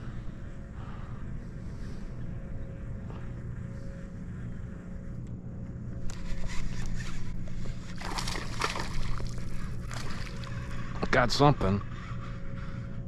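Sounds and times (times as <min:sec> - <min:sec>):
steady low hum: 0:00.0 - 0:13.0
water splashing and sloshing: 0:06.8 - 0:10.9.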